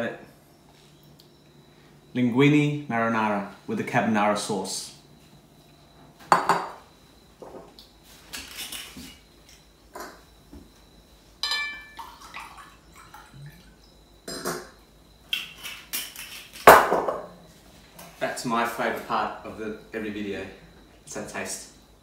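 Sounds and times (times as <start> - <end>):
glassware and dishes knocking: 6.3 - 6.8, 11.4 - 12.0
ringing glass clink: 11.4 - 12.0.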